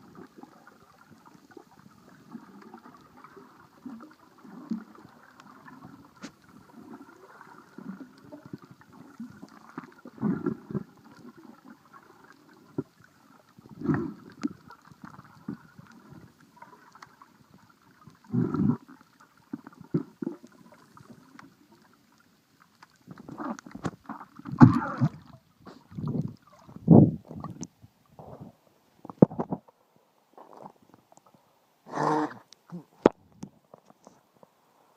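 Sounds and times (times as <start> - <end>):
underwater water surges: 0.0 - 29.2.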